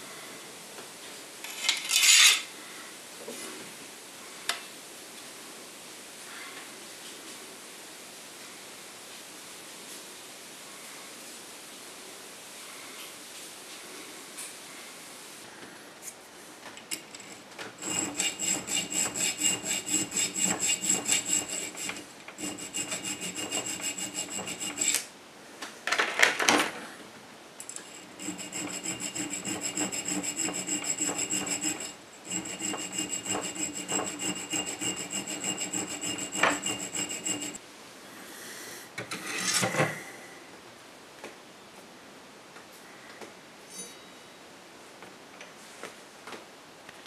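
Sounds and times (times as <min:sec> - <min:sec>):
irregular metal scrape: 0:01.5 - 0:02.5, 0:16.9 - 0:25.1, 0:27.6 - 0:37.6, 0:39.0 - 0:40.0
hand file rasping on metal bar: 0:16.9 - 0:25.1, 0:27.7 - 0:37.6.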